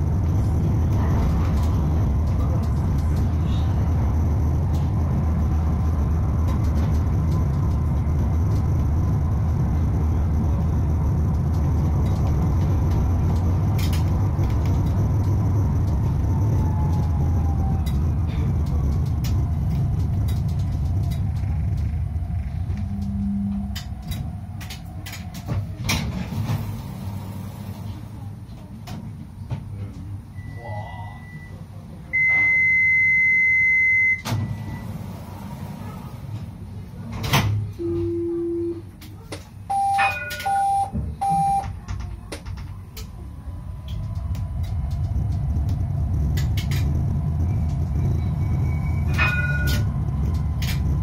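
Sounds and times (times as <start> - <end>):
tram rumbling and braking: 0.0 - 51.0
wheels clicking on rails: 0.2 - 30.1, 39.0 - 51.0
tram warning beeps: 22.6 - 23.8, 30.3 - 35.1, 37.7 - 39.0, 39.7 - 41.9, 47.0 - 51.0.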